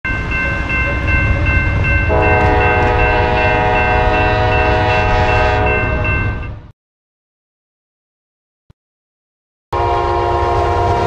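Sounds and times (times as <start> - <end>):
high ringing tone: 0.1 - 6.6
locomotive air horn chord: 2.1 - 6.1, 9.7 - 11.0.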